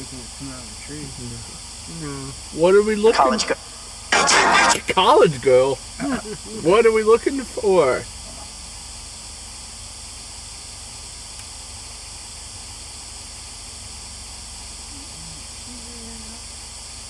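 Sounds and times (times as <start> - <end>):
static hiss: 0.0 - 8.6.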